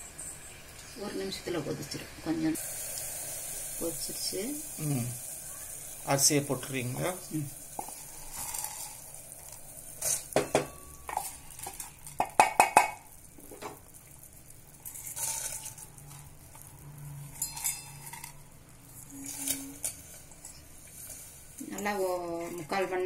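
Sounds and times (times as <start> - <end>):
metal bowl and spoon clinking: 7.8 - 13.8, 14.8 - 22.9.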